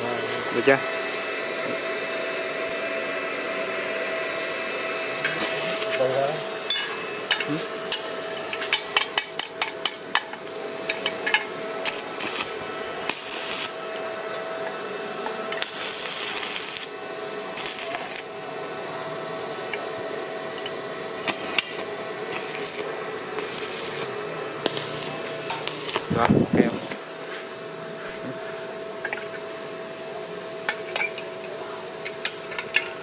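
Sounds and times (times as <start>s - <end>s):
welder humming: 0.0s - 33.0s
welding arc crackling: 7.2s - 13.9s, 15.5s - 19.8s, 21.1s - 27.2s
electrode scratching metal: 17.6s - 18.3s, 23.4s - 27.0s.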